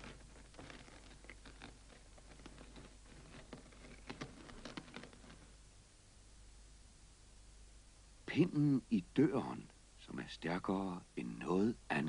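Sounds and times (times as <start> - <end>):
harness rattling: 0.0 - 5.5.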